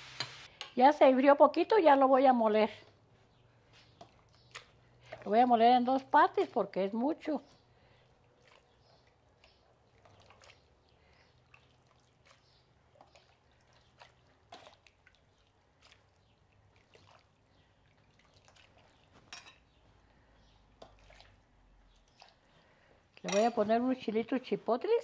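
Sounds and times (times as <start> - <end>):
wet pouring and dripping: 7.7 - 23.3
ladle scooping from a pot: 8.4 - 19.7, 20.8 - 21.4.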